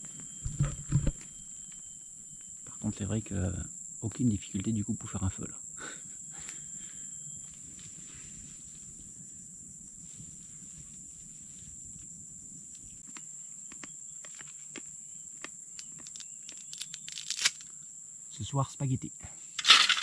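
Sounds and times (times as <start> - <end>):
insects droning: 0.0 - 20.0.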